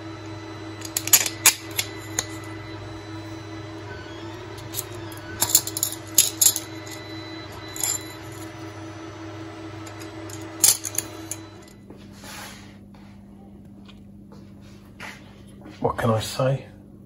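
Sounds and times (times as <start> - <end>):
steady low hum: 0.0 - 17.0
metal plates clinking: 0.8 - 2.5, 4.6 - 8.6, 9.9 - 11.7.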